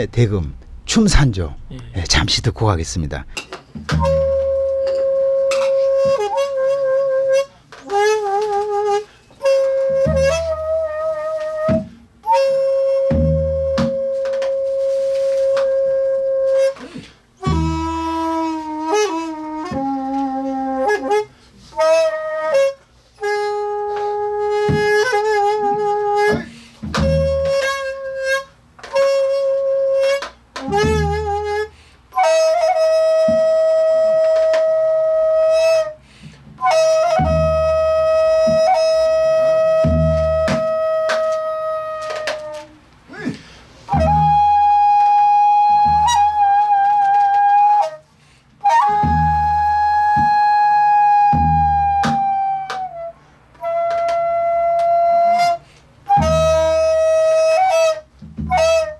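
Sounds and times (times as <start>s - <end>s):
low drum strokes: 0.0s - 3.4s
bamboo flute melody: 3.2s - 36.0s, 36.6s - 58.9s.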